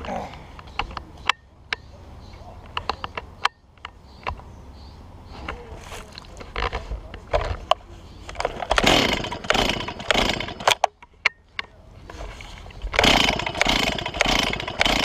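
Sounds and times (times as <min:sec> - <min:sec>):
chainsaw idling and revving: 0:08.6 - 0:10.8, 0:12.9 - 0:15.0.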